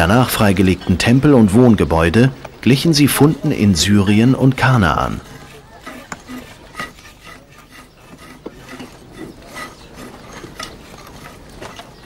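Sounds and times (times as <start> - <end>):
hand tool scraping soil: 4.4 - 12.0.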